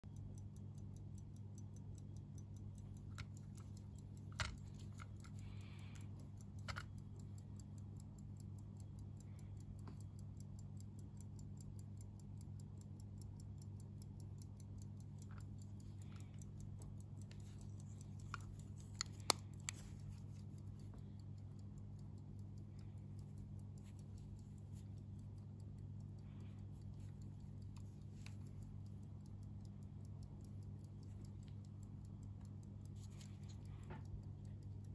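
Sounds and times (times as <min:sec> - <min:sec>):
pocket watch ticking: 0:00.0 - 0:34.9
steady low hum: 0:00.0 - 0:34.9
watch case clicks: 0:06.6 - 0:07.0.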